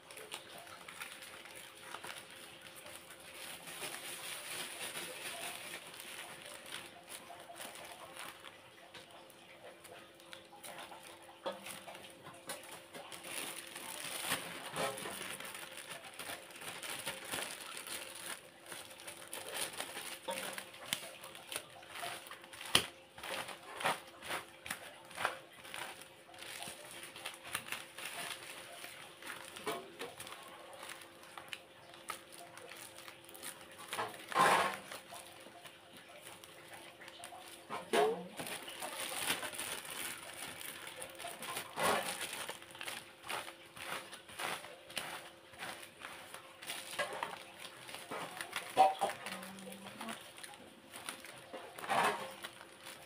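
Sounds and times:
plastic bags rustling and crinkling: 0.0 - 53.0.

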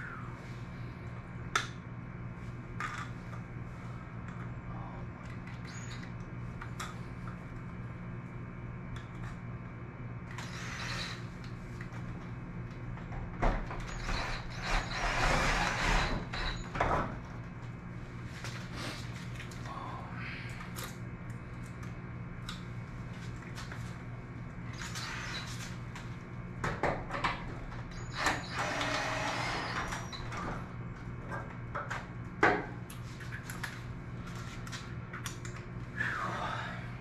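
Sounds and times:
low hum: 0.0 - 37.0
cordless drill driving screws: 10.3 - 11.2, 13.9 - 16.6, 28.1 - 30.2.

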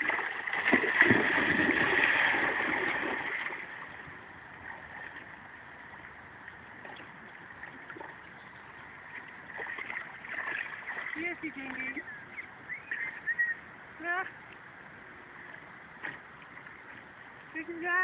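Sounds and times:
dog splashing through water: 0.0 - 3.8, 9.5 - 11.2
water lapping: 0.0 - 14.3.

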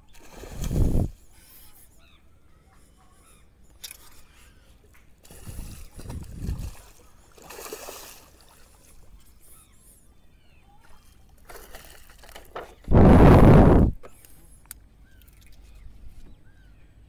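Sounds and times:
water splashing: 0.0 - 1.2, 5.2 - 9.2, 10.8 - 12.6
fish thrashing in water: 5.2 - 9.1, 10.8 - 12.6.

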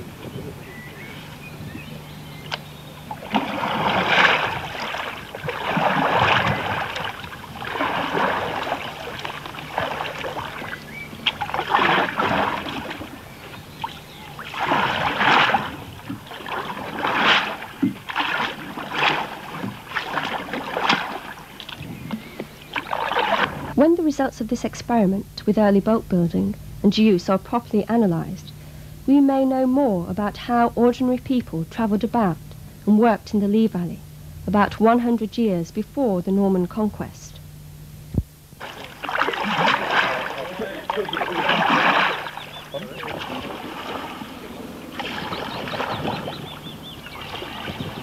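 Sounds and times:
paddle splashing through water: 3.0 - 23.8, 38.6 - 48.0.

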